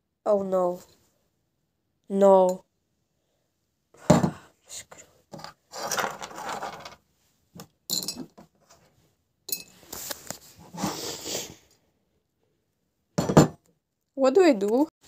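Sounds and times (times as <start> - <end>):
small rocks rattling in glass jar: 5.7 - 7.0.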